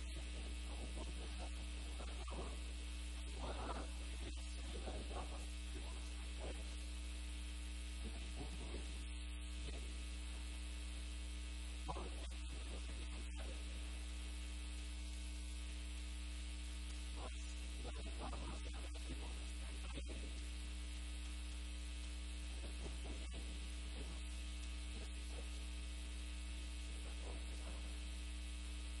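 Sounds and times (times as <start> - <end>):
electrical mains hum: 0.0 - 29.0.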